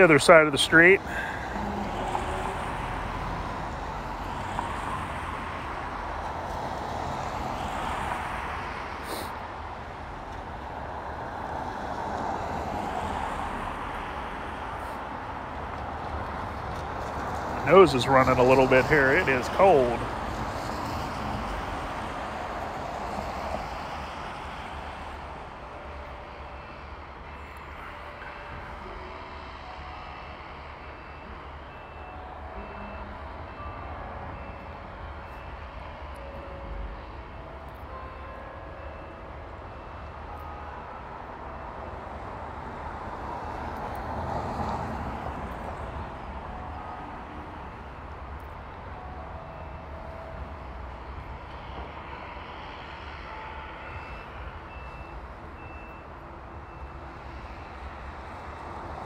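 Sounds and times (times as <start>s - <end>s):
street traffic: 0.0s - 59.0s
faint high beep: 53.9s - 56.0s.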